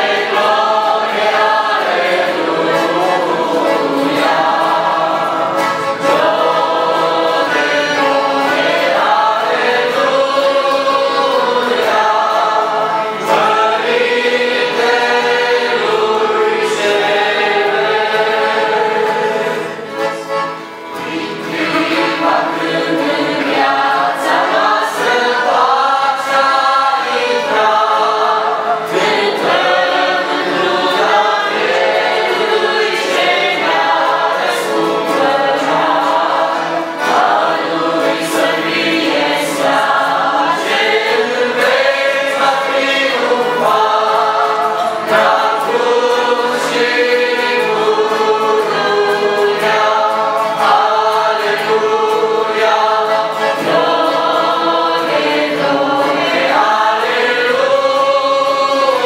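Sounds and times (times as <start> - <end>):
accordion: 0.0 - 59.0
acoustic guitar: 0.0 - 59.0
men singing a hymn: 0.0 - 59.0.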